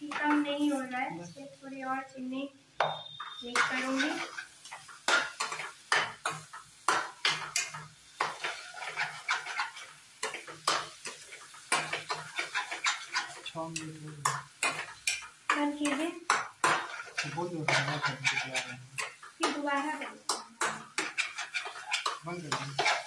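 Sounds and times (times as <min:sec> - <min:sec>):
metal spatula scraping a steel pot: 0:03.0 - 0:06.5, 0:07.2 - 0:13.5, 0:16.6 - 0:23.0.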